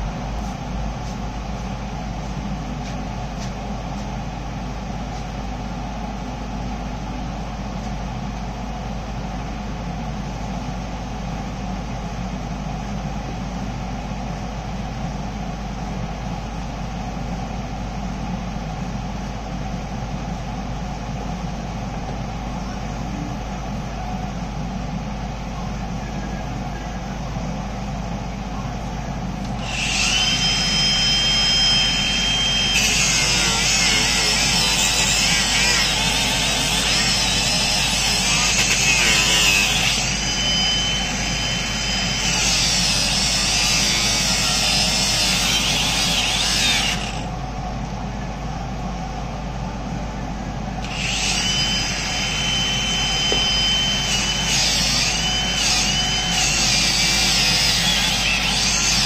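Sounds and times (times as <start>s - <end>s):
low machine drone: 0.0s - 59.0s
angle grinder whine: 29.4s - 47.4s, 50.8s - 59.0s.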